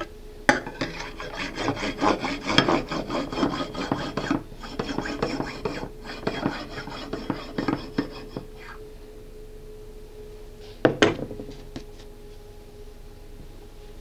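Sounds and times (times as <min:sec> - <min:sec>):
faint steady hum: 0:00.0 - 0:14.0
serrated knife sawing through cake: 0:00.7 - 0:08.8.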